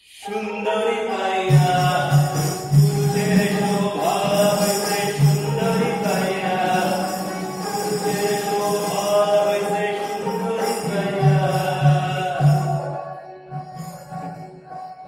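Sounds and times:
folk melody with drone: 0:00.2 - 0:15.0
jingling percussion: 0:01.5 - 0:13.0.

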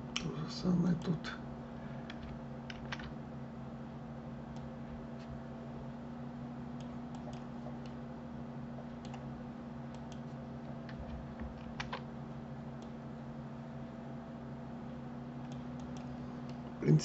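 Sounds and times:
keyboard and mouse clicks: 0:09.0 - 0:09.2, 0:09.9 - 0:12.1, 0:15.4 - 0:16.7.

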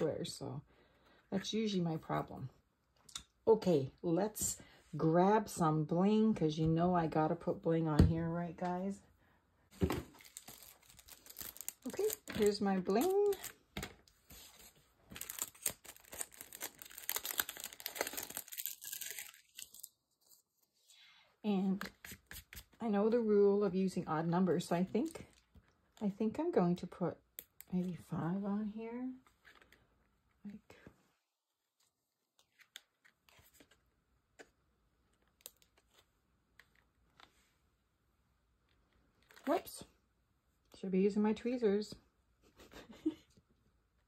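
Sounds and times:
plastic packet crinkling: 0:10.1 - 0:13.6, 0:15.1 - 0:20.4.

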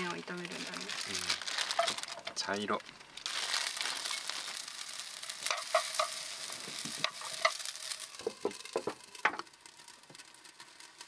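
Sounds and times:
noodles sizzling in frying pan: 0:00.0 - 0:11.0
utensil scraping pan: 0:05.4 - 0:08.8.

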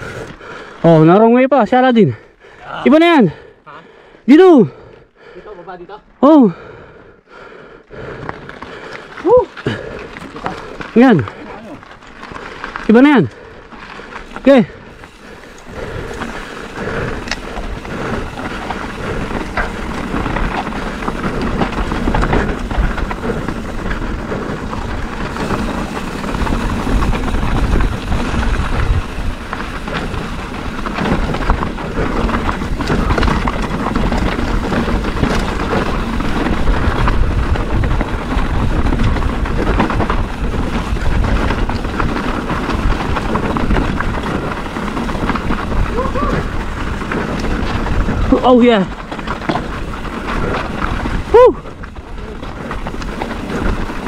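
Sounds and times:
tyres rattling on loose stones: 0:07.3 - 0:54.0
wind buffeting microphone: 0:13.4 - 0:54.0.

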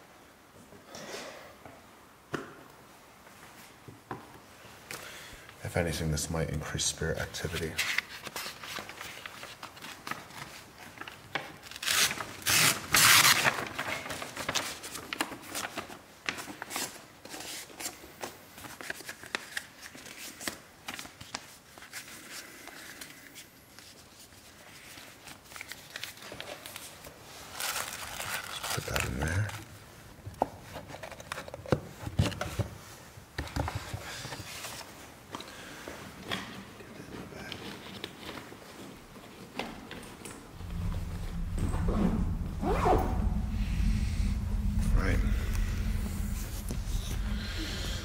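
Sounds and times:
paper and plastic bag rustling: 0:25.4 - 0:29.5.

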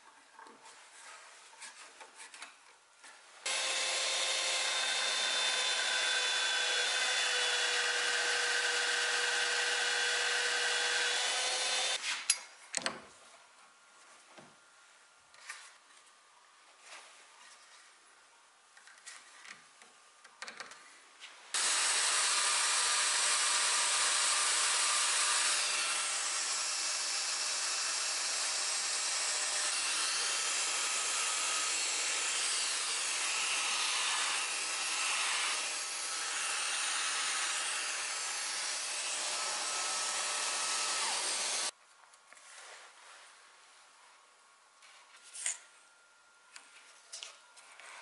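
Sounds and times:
electric belt sander running: 0:03.5 - 0:12.0, 0:21.6 - 0:41.7.

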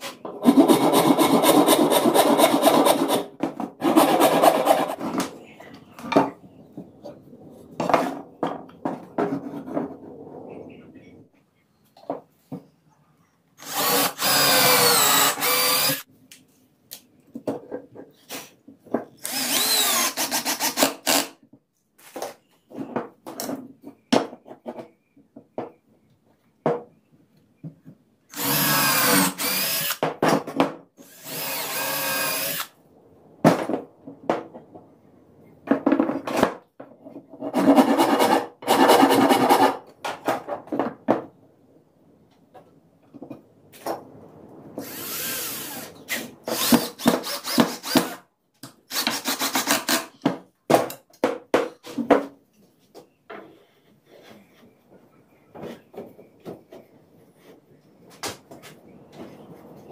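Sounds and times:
cordless drill running: 0:13.6 - 0:16.0, 0:19.2 - 0:21.2, 0:28.3 - 0:30.0, 0:31.0 - 0:32.7.

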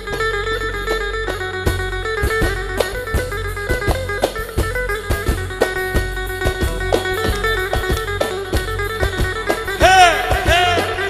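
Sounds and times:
plucked lute melody: 0:00.0 - 0:11.0
steady drum beat: 0:00.0 - 0:11.0
man singing: 0:09.8 - 0:11.0.

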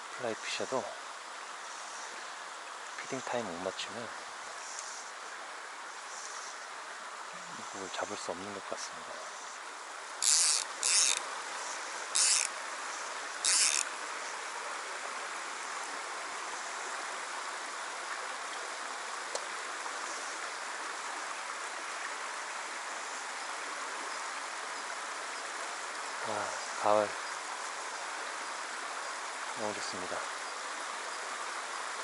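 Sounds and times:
stream running over stones: 0:00.0 - 0:32.0
short high buzzes: 0:10.2 - 0:11.2, 0:12.2 - 0:12.5, 0:13.4 - 0:13.9.

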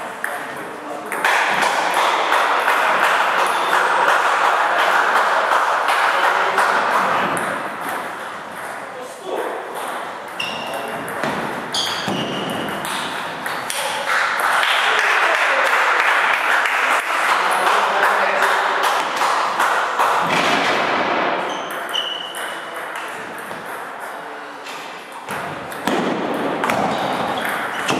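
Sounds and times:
ball bounce: 0:09.7 - 0:13.9, 0:25.2 - 0:27.9.

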